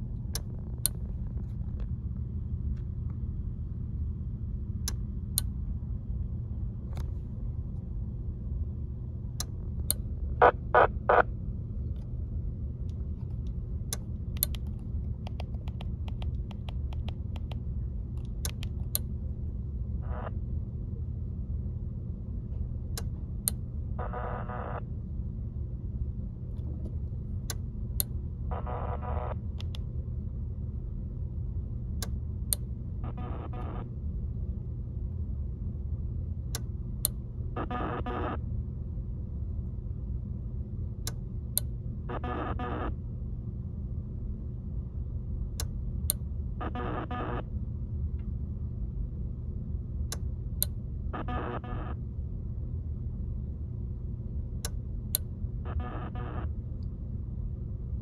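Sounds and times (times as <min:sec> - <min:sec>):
radio static: 0:10.4 - 0:11.3, 0:24.0 - 0:24.8, 0:28.5 - 0:29.4, 0:33.1 - 0:33.8, 0:37.6 - 0:38.4, 0:42.1 - 0:43.0, 0:46.6 - 0:47.5, 0:51.2 - 0:52.0, 0:55.7 - 0:56.5
sharp clicks and taps: 0:13.3 - 0:17.6
data bursts: 0:51.2 - 0:52.0.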